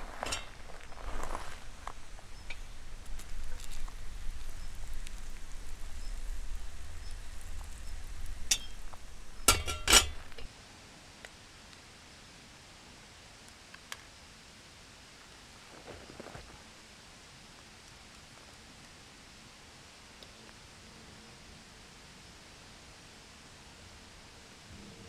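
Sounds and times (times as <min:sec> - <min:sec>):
sharp metallic clinks: 0:08.5 - 0:10.5.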